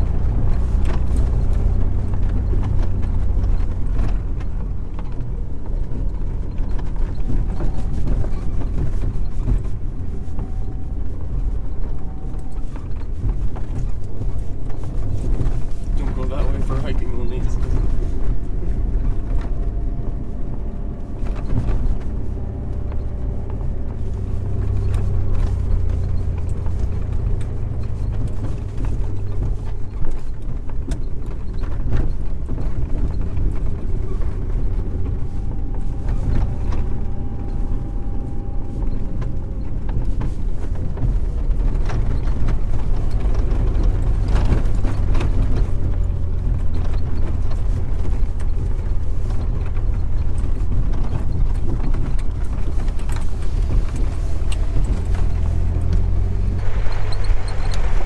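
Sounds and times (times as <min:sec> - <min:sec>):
engine and driveline drone: 0:00.0 - 0:58.0
suspension knocks and rattles: 0:00.0 - 0:58.0.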